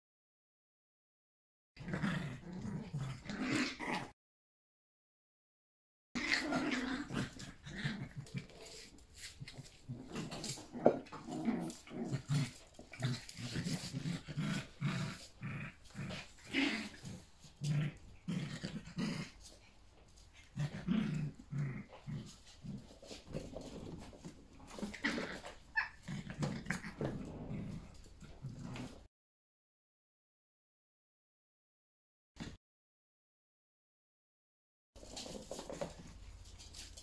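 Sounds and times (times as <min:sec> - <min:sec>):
small dogs growling and play-fighting: 0:01.8 - 0:04.2, 0:06.2 - 0:29.1, 0:32.4 - 0:32.6, 0:35.0 - 0:37.0.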